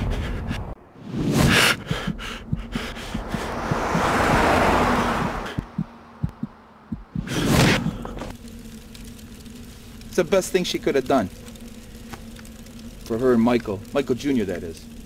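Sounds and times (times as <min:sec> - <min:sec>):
whoosh of noise: 0:02.9 - 0:06.5.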